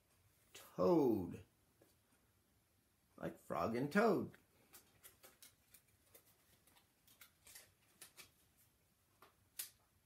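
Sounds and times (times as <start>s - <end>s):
card pages turning: 4.6s - 8.7s.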